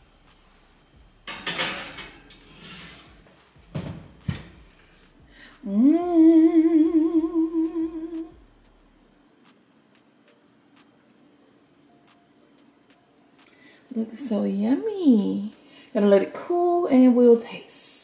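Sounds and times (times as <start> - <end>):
glass dish scraping: 1.3 - 3.2
person humming with vibrato: 5.6 - 8.4.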